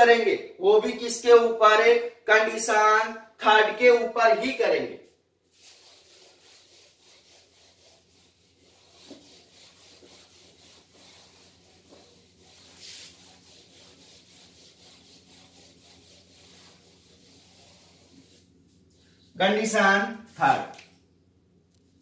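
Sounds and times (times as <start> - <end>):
duster rubbing on whiteboard: 5.4 - 19.3.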